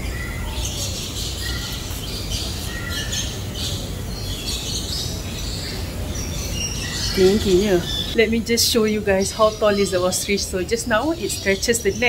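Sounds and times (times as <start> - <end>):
birds chirping and squawking: 0.0 - 12.0.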